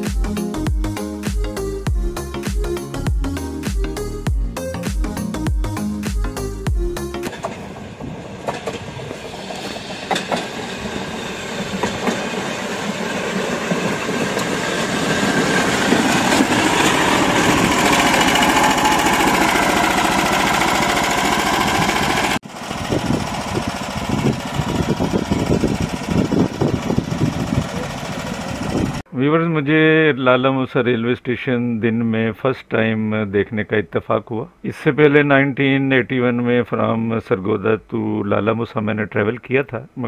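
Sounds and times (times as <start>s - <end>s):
rail trolley engine running: 7.0s - 29.0s
engine idling unevenly: 15.6s - 29.0s.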